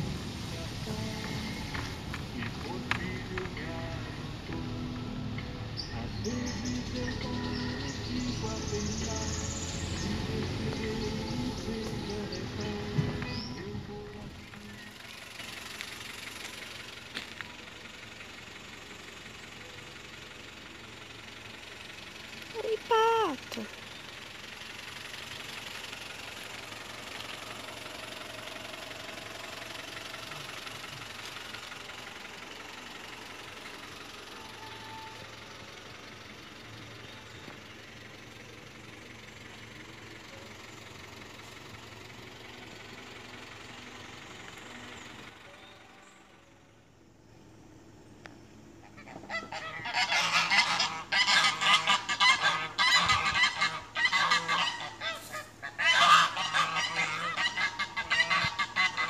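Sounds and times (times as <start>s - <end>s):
geese honking: 48.8s - 59.0s.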